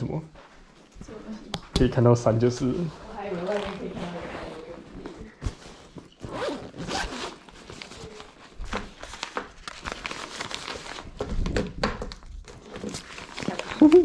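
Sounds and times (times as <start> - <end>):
fabric rustling: 0.3 - 1.5, 2.3 - 11.4
zipper being pulled: 2.8 - 8.3.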